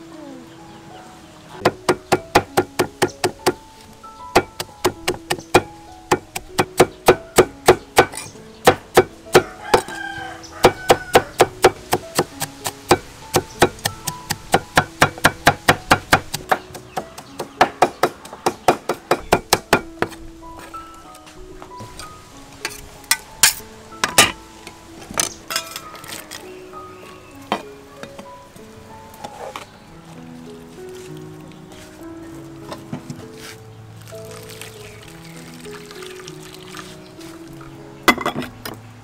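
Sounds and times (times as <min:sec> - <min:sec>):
soft background music: 0:00.0 - 0:39.0
cleaver chopping on wooden board: 0:01.6 - 0:03.6, 0:04.4 - 0:10.0, 0:10.6 - 0:20.2.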